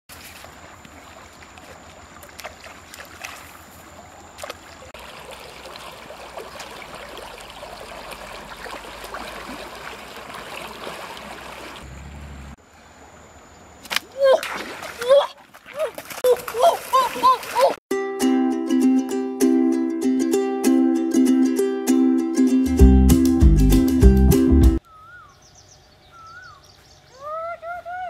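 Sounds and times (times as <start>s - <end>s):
shallow river water flowing: 0.1s - 17.8s.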